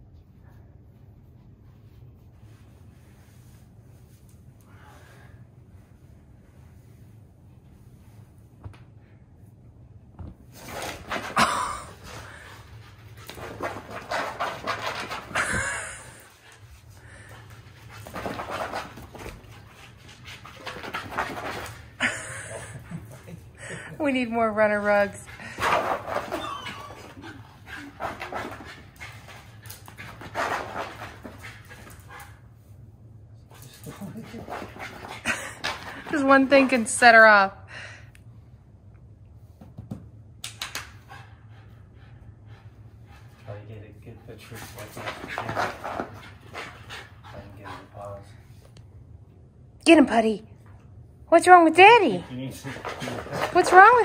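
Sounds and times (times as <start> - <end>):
steady low hum: 0.0 - 54.0
dog panting: 12.1 - 32.8, 40.9 - 48.6, 51.5 - 54.0.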